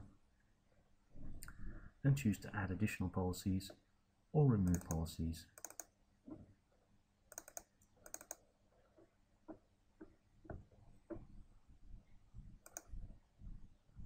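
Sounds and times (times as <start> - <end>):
computer mouse clicks: 4.7 - 5.9, 7.3 - 8.4, 12.6 - 13.0.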